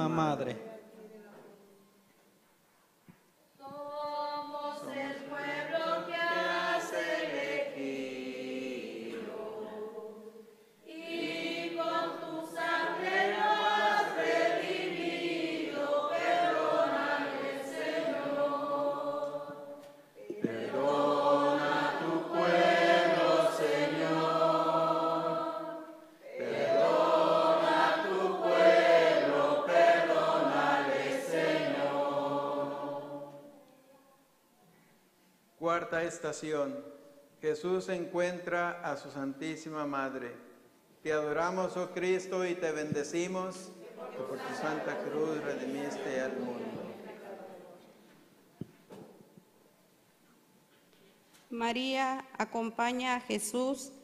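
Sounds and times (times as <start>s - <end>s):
congregation singing a hymn: 3.6s - 33.6s, 41.1s - 48.0s
breaths: 10.4s - 10.9s, 34.6s - 35.4s.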